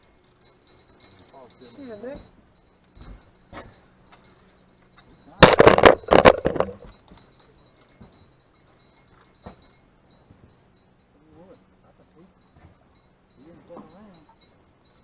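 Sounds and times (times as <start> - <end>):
loud rattling clatter of knocks: 5.4 - 6.9.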